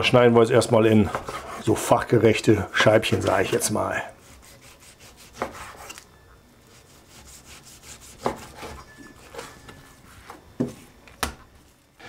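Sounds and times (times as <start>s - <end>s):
knife sawing through meat: 4.2s - 5.8s, 6.7s - 9.5s.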